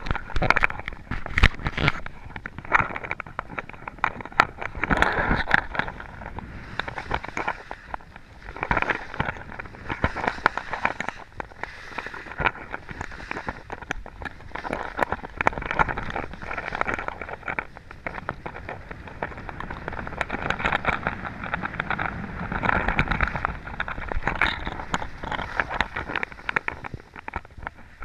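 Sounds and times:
sharp clicks and knocks: 0.0s - 28.0s.

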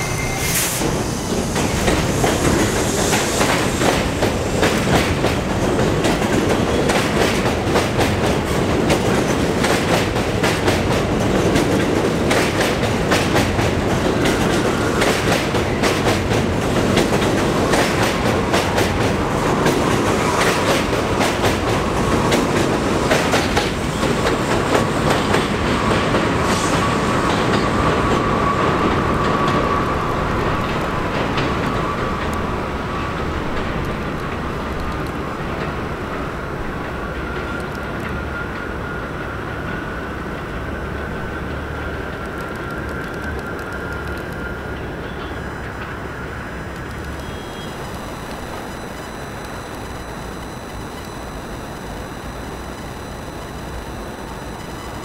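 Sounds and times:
thin high tone: 0.0s - 3.7s, 46.8s - 55.0s
subway train rumbling past: 0.0s - 52.8s.

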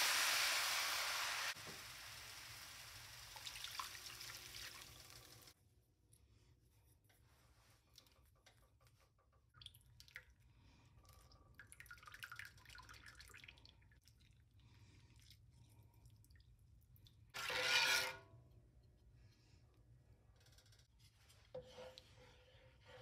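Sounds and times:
sauce simmering and bubbling: 0.0s - 5.6s
spatula scraping skillet: 17.4s - 18.3s, 21.0s - 23.0s.

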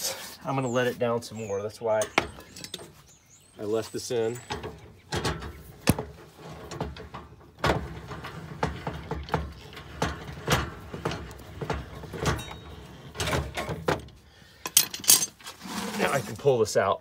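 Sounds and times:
winch metallic clicks and clunks: 4.3s - 15.6s.

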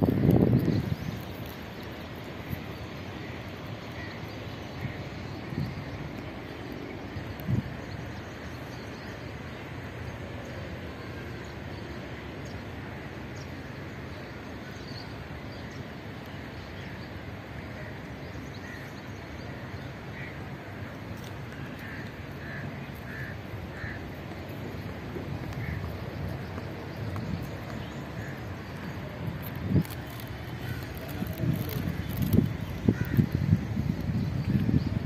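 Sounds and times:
distant city noise: 0.0s - 35.0s
wind: 0.0s - 35.0s
crows cawing: 21.6s - 24.2s, 25.6s - 25.9s, 32.9s - 33.2s.

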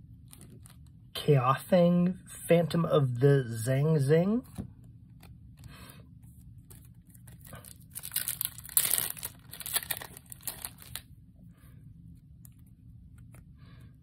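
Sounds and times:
foil wrapper crinkling and tearing: 6.6s - 11.1s.

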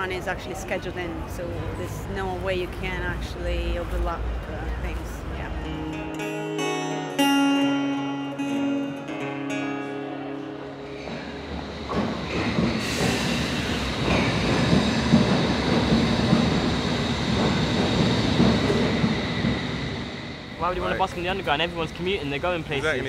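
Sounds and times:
acoustic guitar music: 5.6s - 12.1s
high squeal of train wheels: 10.9s - 20.8s
underground train wheel rumble: 10.9s - 23.0s.

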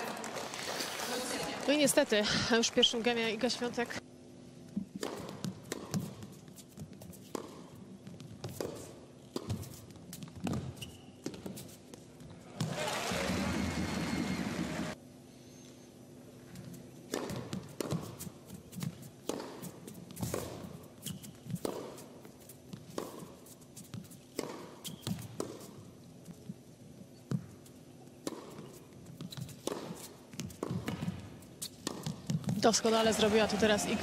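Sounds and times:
tennis ball bouncing: 4.7s - 12.0s, 17.1s - 26.5s, 27.2s - 34.0s
racket hitting tennis ball: 4.9s - 11.8s, 17.1s - 25.8s, 28.2s - 34.0s.

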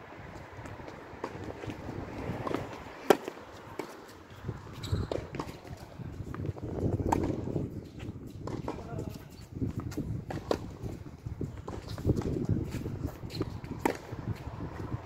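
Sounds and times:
footsteps scuffing on court: 0.2s - 15.0s
racket striking tennis ball: 2.4s - 4.2s, 5.0s - 5.9s, 7.0s - 7.6s, 9.9s - 10.8s, 13.3s - 14.2s
ball bouncing: 7.0s - 7.6s.

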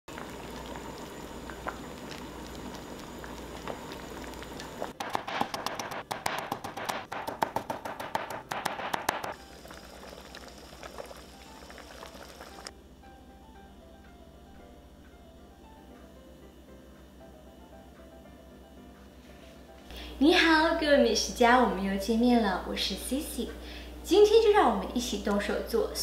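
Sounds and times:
soup bubbling in a pot: 0.1s - 5.0s, 9.3s - 12.7s
cleaver chopping on cutting board: 5.0s - 9.4s.

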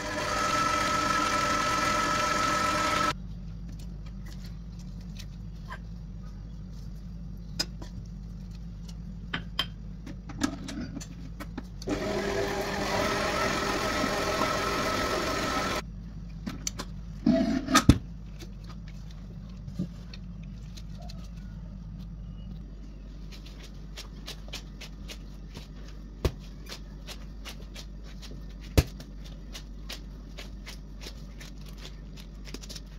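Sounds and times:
stand mixer motor running: 0.0s - 3.2s, 11.9s - 15.8s.

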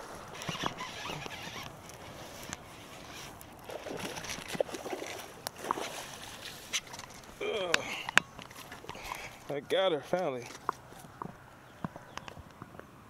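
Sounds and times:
fish splashing in water: 0.0s - 9.5s.

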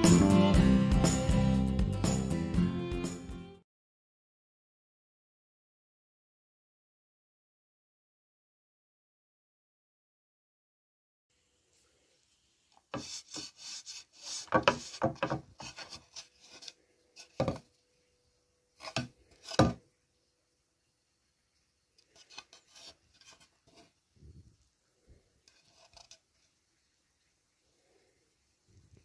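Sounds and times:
board scraping and rubbing: 12.9s - 17.6s, 18.8s - 19.8s, 22.1s - 24.0s, 25.5s - 26.2s.

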